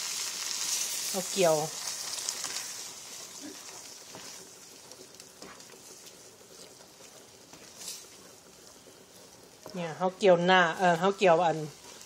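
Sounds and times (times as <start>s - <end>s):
curry sizzling in frying pan: 0.0s - 12.0s.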